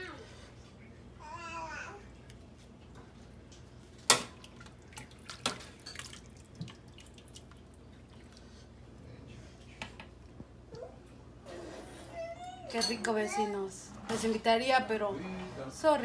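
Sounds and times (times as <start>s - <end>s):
liquid splashing and dripping: 4.0s - 8.6s.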